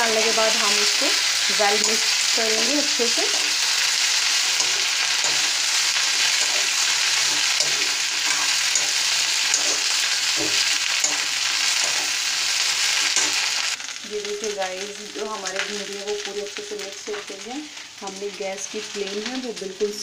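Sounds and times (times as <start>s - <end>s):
okra sizzling in hot oil: 0.0s - 20.0s
spoon stirring in pan: 0.7s - 13.7s.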